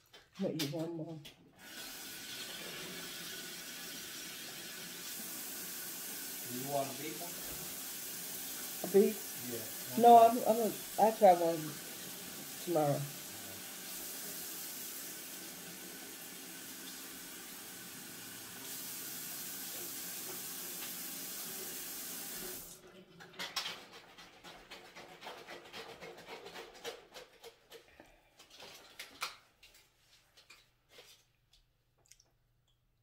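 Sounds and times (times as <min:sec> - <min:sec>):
tap water running: 0:01.5 - 0:22.8.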